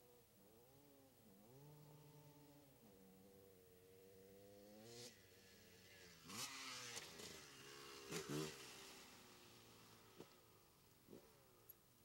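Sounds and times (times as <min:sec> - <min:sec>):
dirt bike engine revving: 0:04.3 - 0:10.3.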